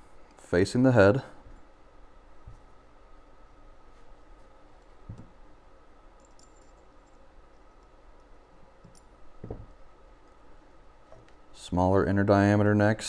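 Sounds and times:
soft knock: 9.4s - 9.8s.

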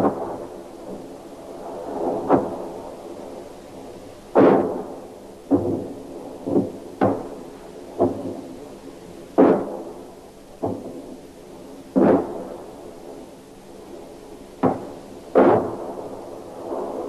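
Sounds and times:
heavy gunfire bangs with echo: 14.6s - 16.0s.

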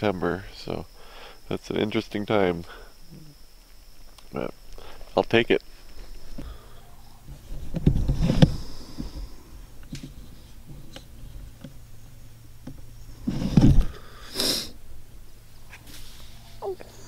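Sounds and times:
person sniffing: 14.0s - 14.8s.

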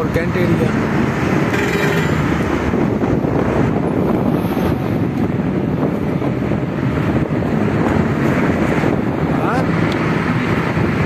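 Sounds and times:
moving vehicle road noise: 0.0s - 11.0s
wind rushing over microphone: 0.0s - 11.0s.

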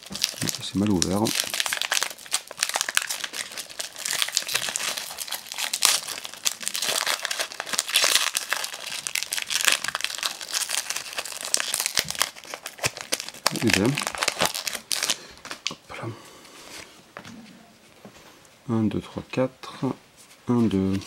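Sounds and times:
foil wrapper crinkling and tearing: 0.0s - 15.8s.

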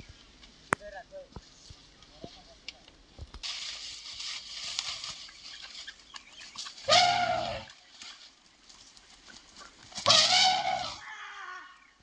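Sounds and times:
elephant trumpeting: 6.9s - 7.7s, 10.0s - 11.2s.

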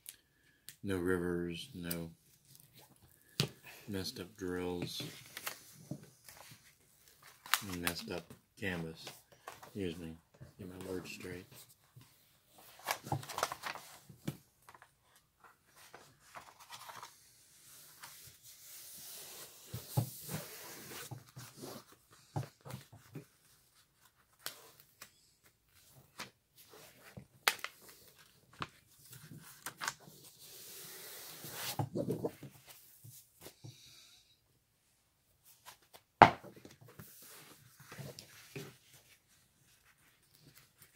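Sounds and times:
paper rustling and crinkling: 4.3s - 10.0s, 10.7s - 30.5s, 35.4s - 40.9s.

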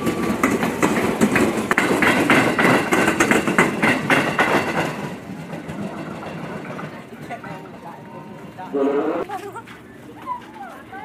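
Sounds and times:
train wheels clacking: 0.0s - 8.7s.

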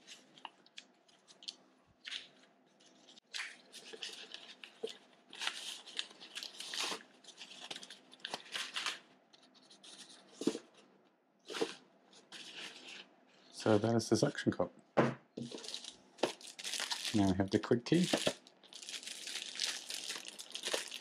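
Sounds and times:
plastic packaging rustling: 0.0s - 10.8s, 15.4s - 21.0s.

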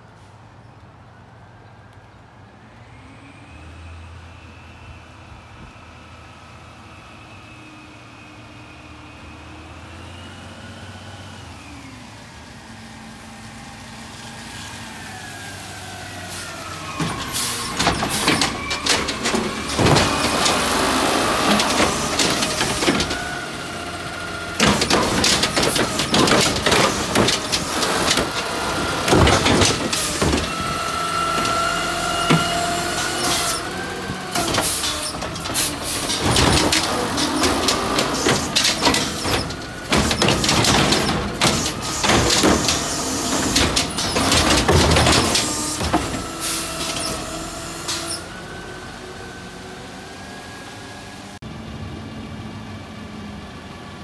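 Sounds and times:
garbage truck engine: 2.8s - 54.0s
hydraulic whine: 14.6s - 51.3s
clanks and bangs of cart: 17.0s - 48.2s.

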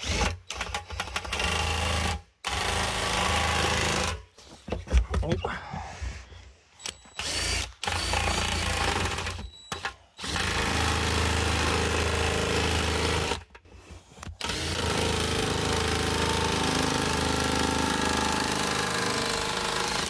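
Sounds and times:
power drill cutting plastic: 6.8s - 20.0s.

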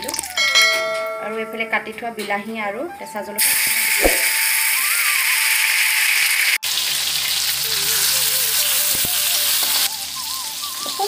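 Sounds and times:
vegetables sizzling in hot oil: 3.4s - 11.0s.

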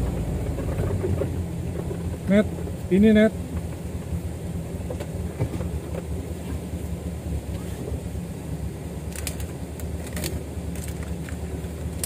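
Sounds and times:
car engine running from inside cabin: 0.0s - 12.0s
sharp rattling clicks: 9.1s - 11.4s.

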